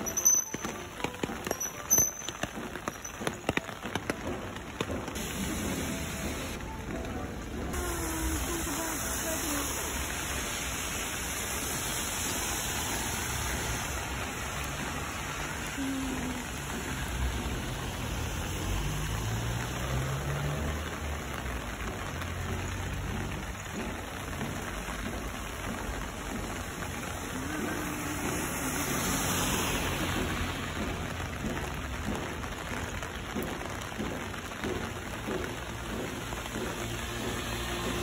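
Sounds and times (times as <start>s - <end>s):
rain on pavement: 0.0s - 38.0s.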